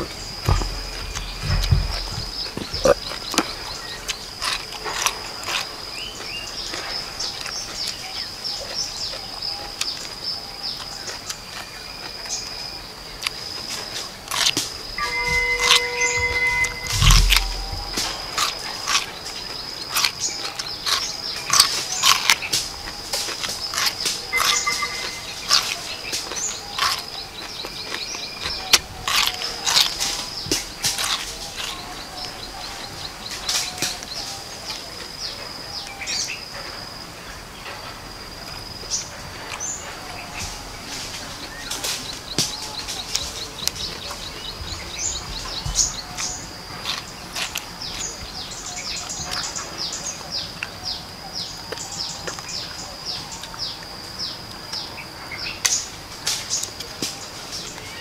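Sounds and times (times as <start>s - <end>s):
crunchy chewing: 0.0s - 58.0s
high-pitched drone: 15.0s - 18.5s.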